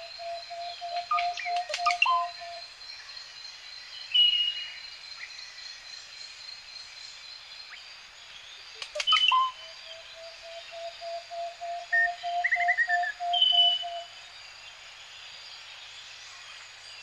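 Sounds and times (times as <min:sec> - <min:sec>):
bird whistle: 0:00.0 - 0:02.6, 0:09.0 - 0:14.1
sharp bird calls: 0:00.0 - 0:02.6, 0:08.7 - 0:14.1
high insect tone: 0:00.0 - 0:17.0.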